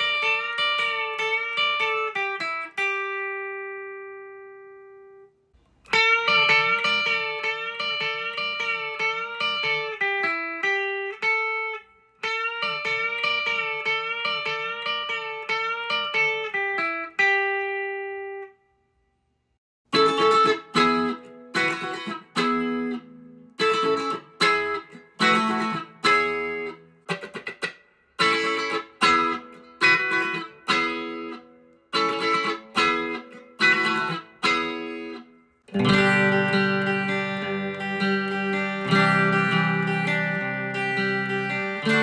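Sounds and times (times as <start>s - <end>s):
electric guitar single-note phrases: 0.0s - 5.3s, 5.9s - 18.5s, 28.2s - 42.0s.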